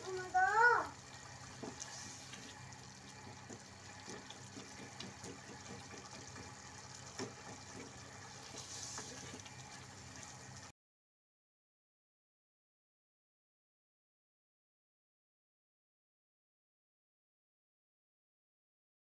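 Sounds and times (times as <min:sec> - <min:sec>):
food bubbling and sizzling: 0:00.0 - 0:10.7
spatula scraping pot: 0:07.1 - 0:09.5.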